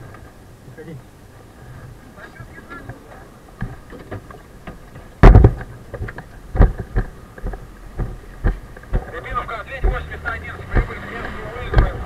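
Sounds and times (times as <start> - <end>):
loud thump: 5.2 - 5.7.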